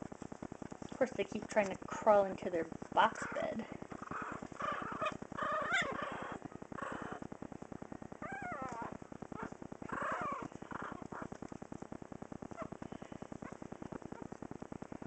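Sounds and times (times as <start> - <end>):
puppies grunting: 2.9 - 7.3, 8.2 - 11.4, 12.5 - 14.4
puppies squeaky cries: 4.1 - 7.2, 10.0 - 10.5.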